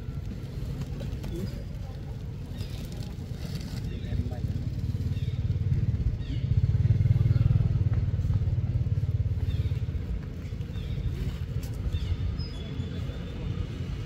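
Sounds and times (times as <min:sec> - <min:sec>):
motor engine running: 0:03.8 - 0:12.2.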